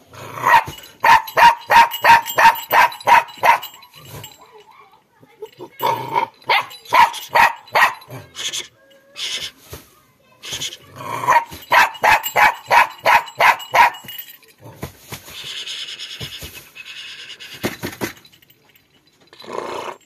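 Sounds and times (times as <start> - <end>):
puppy barking: 0.4 - 3.9, 6.5 - 8.2, 11.2 - 14.1
soft rustling: 9.4 - 10.4.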